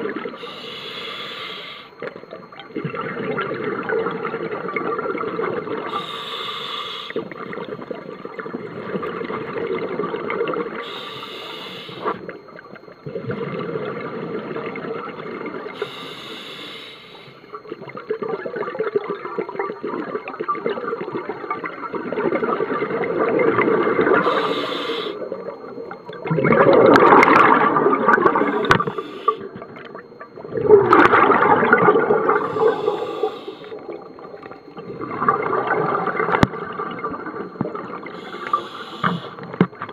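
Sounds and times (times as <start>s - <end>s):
regulator bubbling underwater: 0.0s - 39.9s
regulator hiss: 0.3s - 2.0s, 5.9s - 7.4s, 10.8s - 12.2s, 15.8s - 17.6s, 24.2s - 25.3s, 28.4s - 29.5s, 32.3s - 33.8s, 38.1s - 39.7s.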